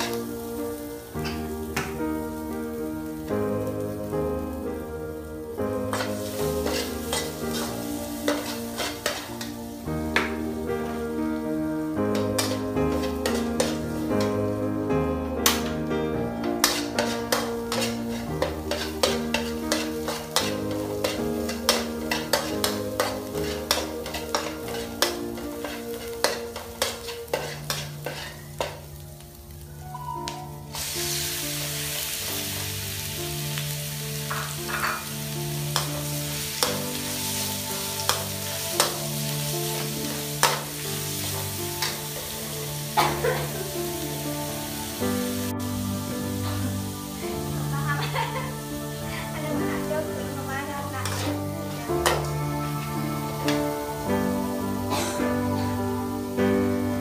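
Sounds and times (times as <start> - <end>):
background music: 0.0 - 57.0
meat sizzling in hot oil: 0.0 - 57.0.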